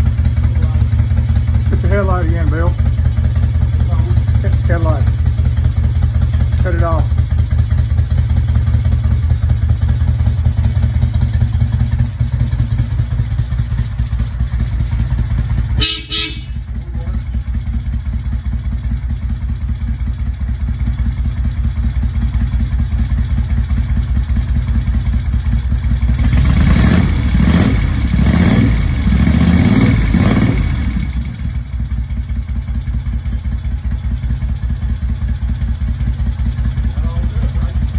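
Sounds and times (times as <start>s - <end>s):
motorcycle engine idling: 0.0s - 37.9s
engine throttle blips: 15.5s - 17.2s.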